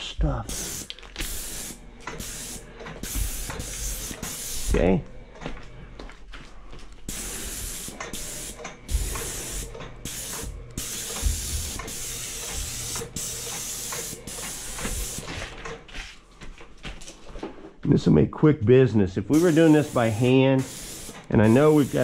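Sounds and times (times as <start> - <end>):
paint spray gun hissing: 0.5 - 4.8, 7.1 - 15.3, 19.3 - 22.0.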